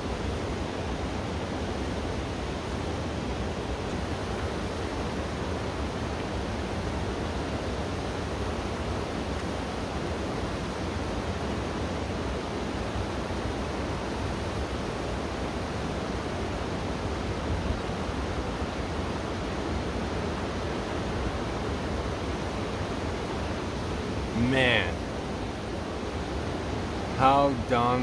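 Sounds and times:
river rushing over rapids: 0.0 - 28.0.

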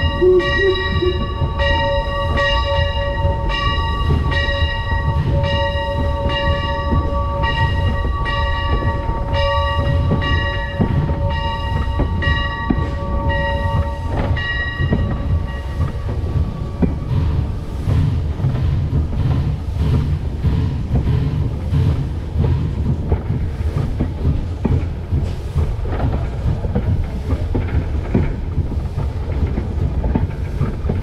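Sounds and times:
locomotive bell ringing: 0.0 - 16.8
locomotive rumbling along track: 0.0 - 31.0.

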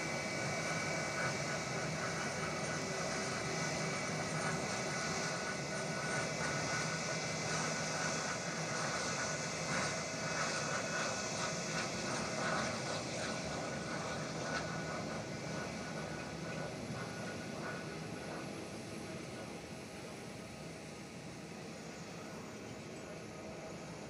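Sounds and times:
jet engines running at taxi power: 0.0 - 24.0.

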